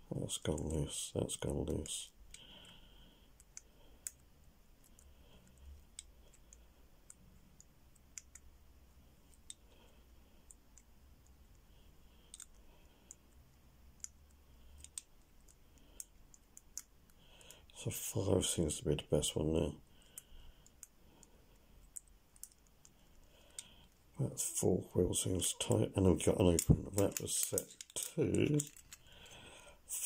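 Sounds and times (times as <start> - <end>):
padlock wheels clicking: 26.6 - 29.0.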